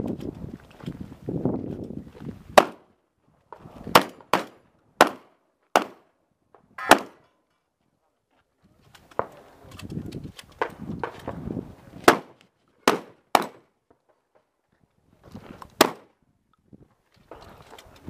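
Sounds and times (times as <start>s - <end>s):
handgun shots: 2.6s - 2.8s, 6.8s - 7.2s, 12.0s - 13.6s, 15.8s - 16.1s.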